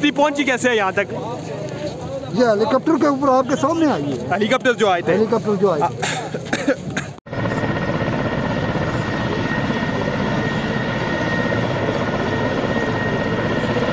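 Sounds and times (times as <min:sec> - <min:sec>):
helicopter rotor and engine: 0:07.3 - 0:13.9.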